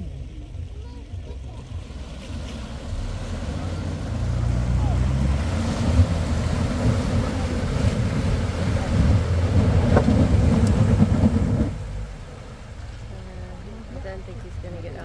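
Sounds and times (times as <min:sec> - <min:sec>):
engine running under load: 0:00.0 - 0:15.0
water rushing: 0:00.0 - 0:15.0.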